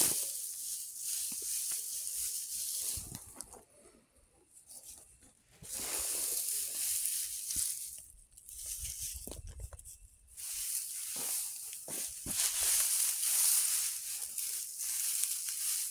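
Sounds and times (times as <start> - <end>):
dry bean pods rustling: 0.0 - 4.0, 4.6 - 15.9.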